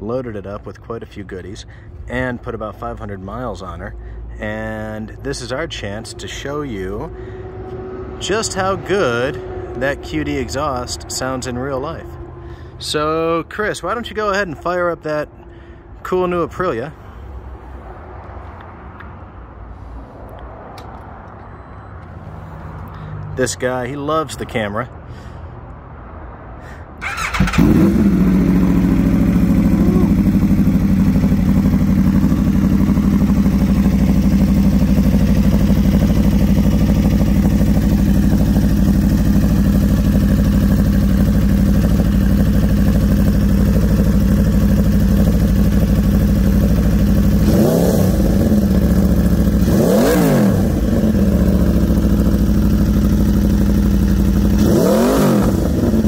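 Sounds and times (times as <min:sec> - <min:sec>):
motorcycle engine idling and revving: 0:00.0 - 0:14.6, 0:27.0 - 0:56.0.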